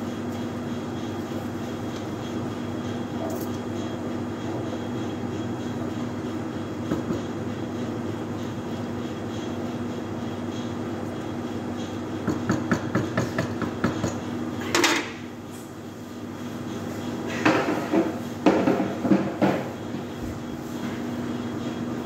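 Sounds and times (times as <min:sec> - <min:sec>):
steady background hum: 0:00.0 - 0:22.0
kitchen knocks and clatter: 0:17.4 - 0:19.7.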